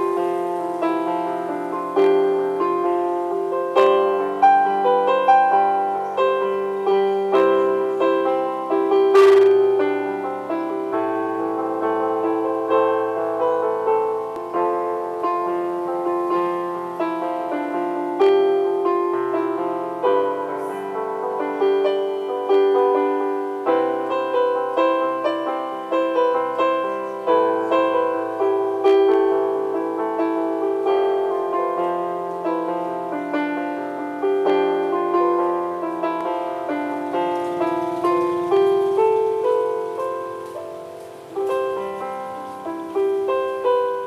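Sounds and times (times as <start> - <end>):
electronic keyboard piano melody: 0.0 - 44.0.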